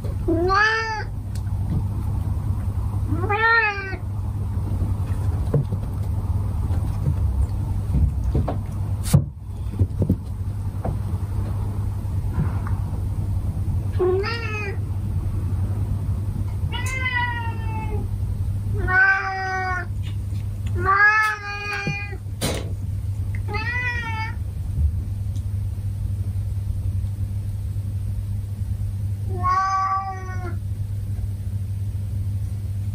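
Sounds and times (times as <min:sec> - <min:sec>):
low hum: 0:00.0 - 0:32.9
cats meowing: 0:00.3 - 0:01.1, 0:03.1 - 0:04.0, 0:13.9 - 0:14.8, 0:16.6 - 0:18.1, 0:18.7 - 0:20.0, 0:20.8 - 0:22.2, 0:23.4 - 0:24.4, 0:29.3 - 0:30.6.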